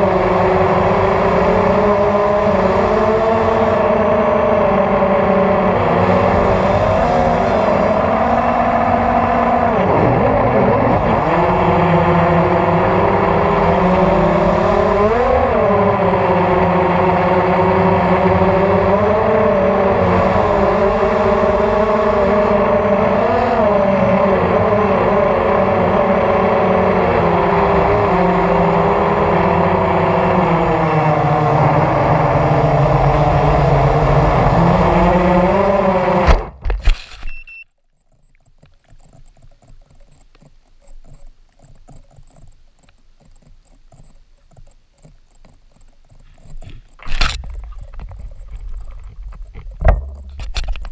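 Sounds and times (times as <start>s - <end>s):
drone motors whining: 0.0s - 50.9s
drone crashing into grass: 49.8s - 50.7s.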